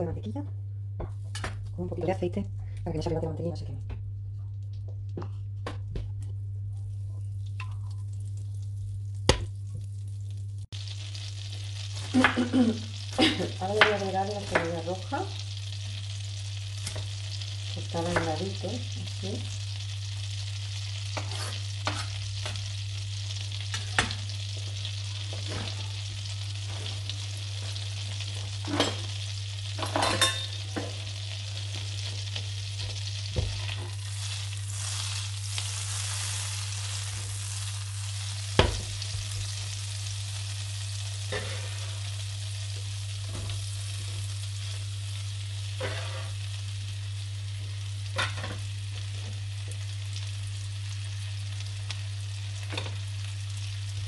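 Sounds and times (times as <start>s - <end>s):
low hum: 0.0s - 49.2s
butter sizzling in a frying pan: 7.2s - 54.0s
onion scraped into pan: 21.1s - 22.2s, 45.8s - 46.4s.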